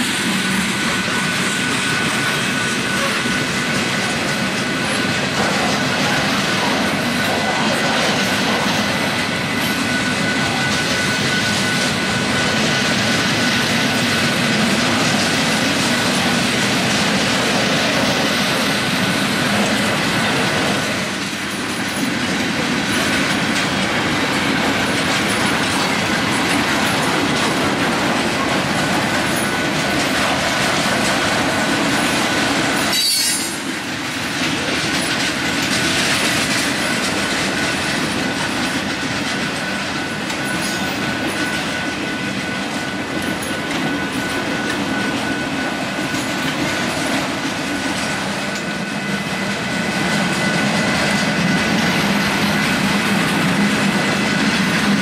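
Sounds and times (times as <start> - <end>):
train wheels rumbling on rails: 0.0 - 55.0
wheel squeal: 9.5 - 14.2, 32.8 - 33.7.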